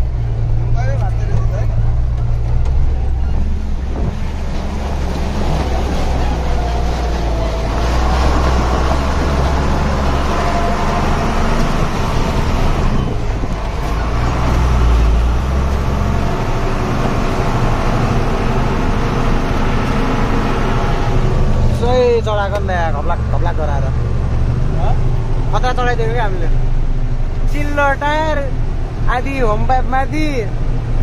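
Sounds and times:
truck engine under load: 0.0 - 29.7.

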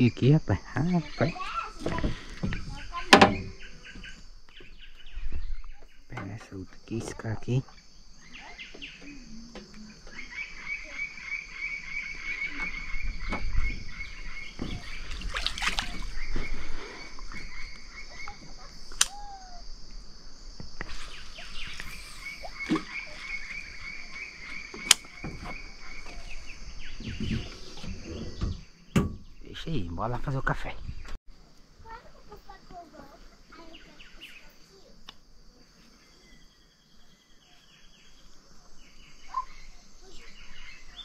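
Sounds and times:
high insect buzz: 0.0 - 28.8
frog trilling: 17.4 - 19.8
sharp clicks: 18.9 - 19.2.

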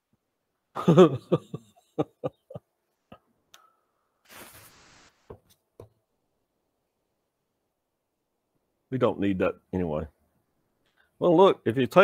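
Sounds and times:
short rustling hiss: 4.2 - 5.4.

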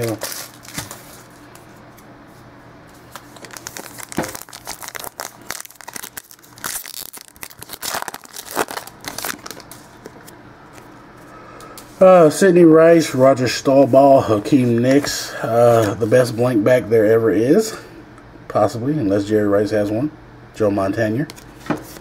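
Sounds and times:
foil wrapper crinkling and tearing: 0.0 - 1.4, 3.1 - 10.3.

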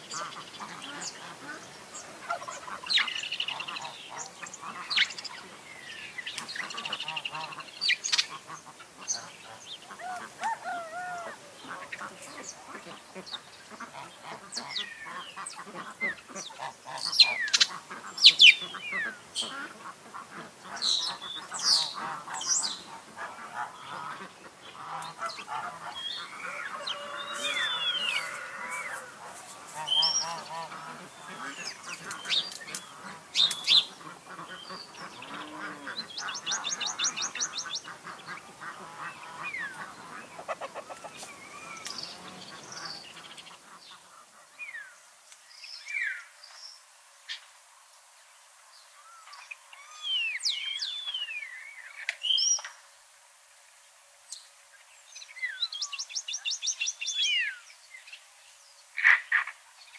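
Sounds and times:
birds chirping and whistling: 25.9 - 29.0
bird high trills: 26.1 - 29.2.

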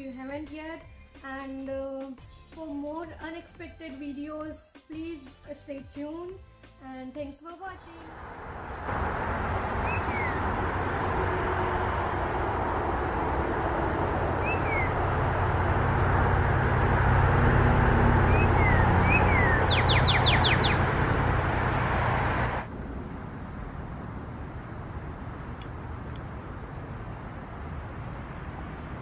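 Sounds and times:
road traffic rumble: 7.8 - 29.0
cardinal singing whistles: 9.8 - 10.5, 14.4 - 15.0, 18.3 - 20.8.

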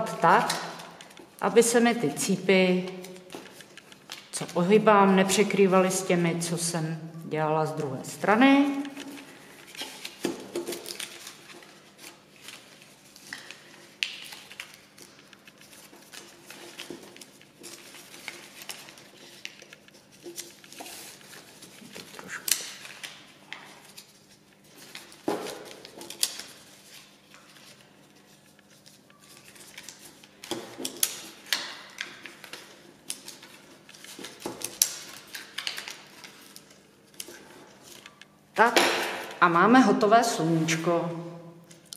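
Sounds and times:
paper rustling and crinkling: 2.8 - 5.9, 8.3 - 38.2.

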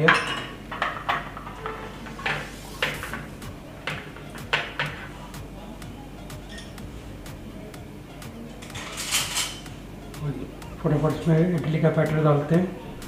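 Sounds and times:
metal plates clinking: 0.0 - 5.1, 8.6 - 9.7.

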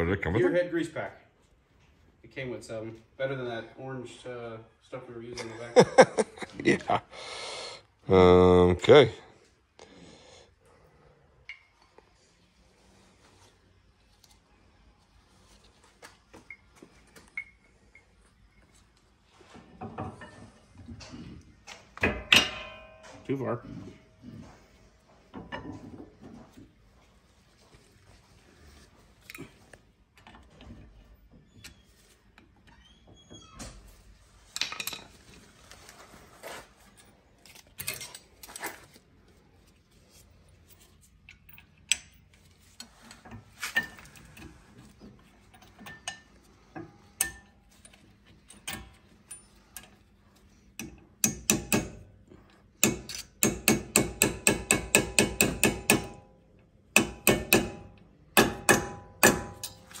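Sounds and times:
hammer tapping metal pin: 50.8 - 52.0, 52.8 - 56.3, 57.0 - 59.8.

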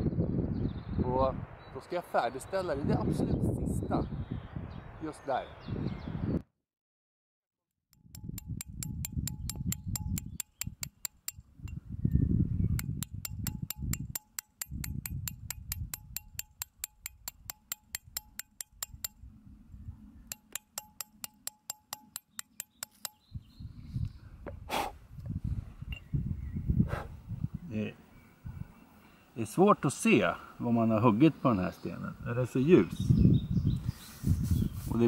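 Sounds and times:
hammer tapping chisel into stone: 8.0 - 11.8, 12.8 - 19.2, 20.3 - 23.3.

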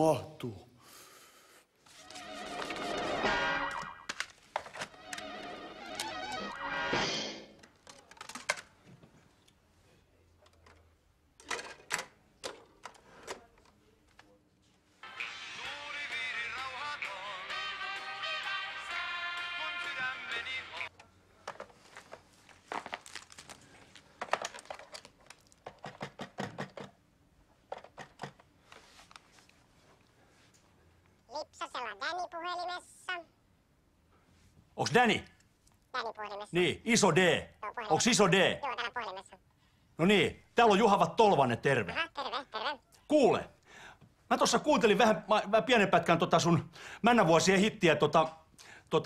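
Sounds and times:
music: 2.0 - 4.1, 4.9 - 7.5, 15.0 - 20.9
plastic cd cases clicking: 7.6 - 8.7, 24.2 - 26.9.

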